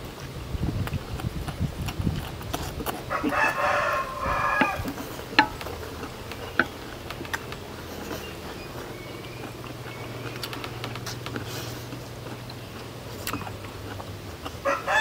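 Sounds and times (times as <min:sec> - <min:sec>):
rooster crowing: 0:03.1 - 0:05.0, 0:14.6 - 0:15.0
sharp clicks: 0:10.2 - 0:11.4.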